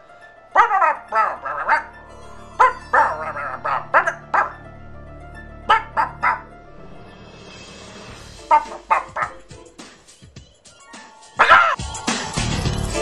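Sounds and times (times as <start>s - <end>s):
dog barking and yipping: 0.5s - 2.0s, 2.6s - 4.6s, 5.7s - 6.5s, 8.4s - 9.5s, 10.9s - 11.8s.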